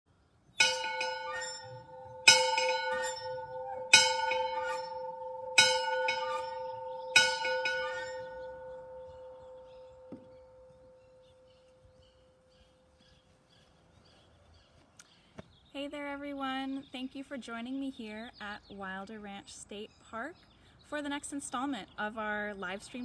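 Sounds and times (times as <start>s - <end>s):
dinner bell ringing: 0.6s - 11.7s.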